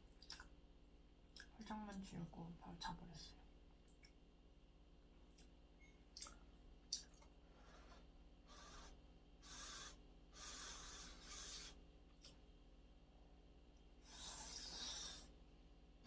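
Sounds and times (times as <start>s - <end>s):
person blowing on hot food: 7.6s - 11.8s, 14.0s - 15.4s.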